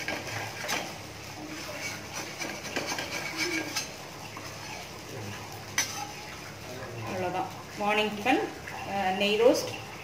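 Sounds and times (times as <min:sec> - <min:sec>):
spatula scraping griddle: 0:00.0 - 0:04.9.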